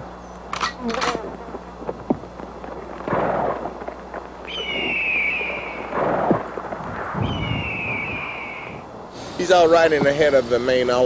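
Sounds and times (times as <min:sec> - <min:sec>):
low rumble: 0:01.0 - 0:11.0
dull echoing blasts: 0:01.2 - 0:10.6
long high falling whistle: 0:04.5 - 0:06.0, 0:07.0 - 0:08.9.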